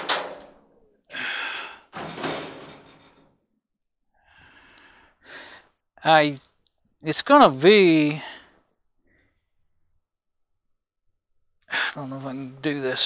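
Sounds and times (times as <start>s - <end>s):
man exhaling and sighing: 1.1s - 2.0s.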